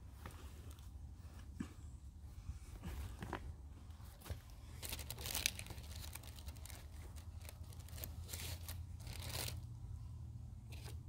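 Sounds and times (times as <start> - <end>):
food packaging crinkling: 4.8 - 9.7.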